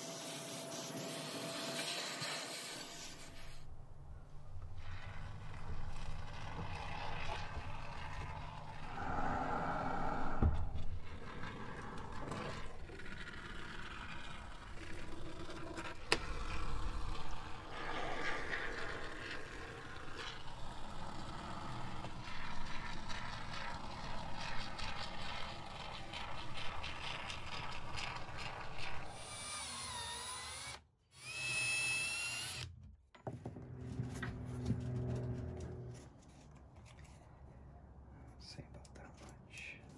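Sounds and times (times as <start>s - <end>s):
cordless drill driving screws: 29.2s - 32.7s.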